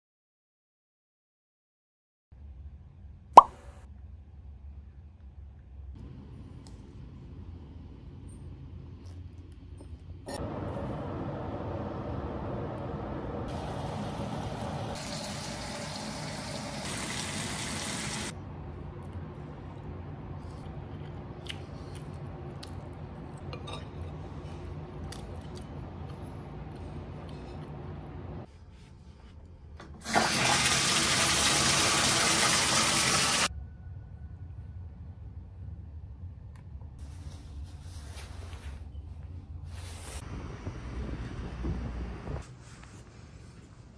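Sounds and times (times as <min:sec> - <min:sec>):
bathtub faucet water gushing: 0:13.6 - 0:18.3, 0:30.0 - 0:33.5.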